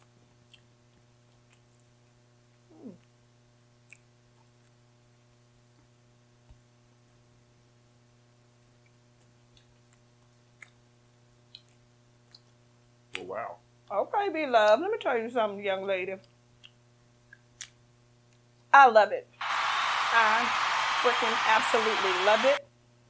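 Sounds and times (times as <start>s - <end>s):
voice murmuring mm: 2.7s - 3.1s.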